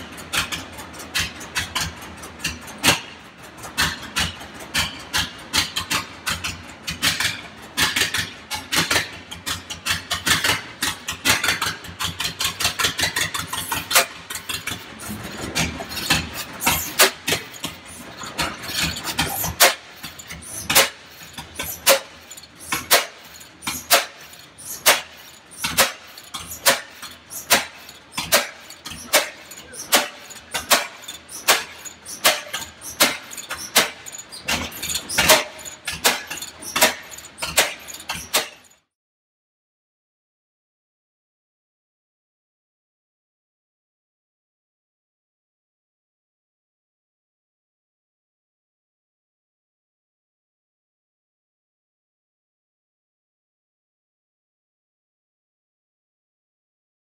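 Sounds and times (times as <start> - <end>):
engine exhaust pops: 0.0 - 38.7
old engines running: 0.0 - 38.8.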